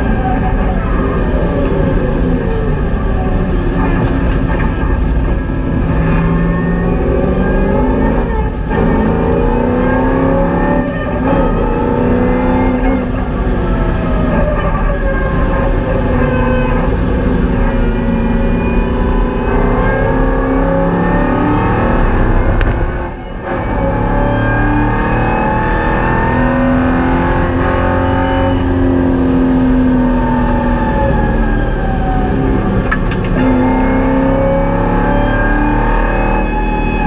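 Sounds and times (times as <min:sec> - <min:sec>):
car engine revving: 0:00.0 - 0:37.0.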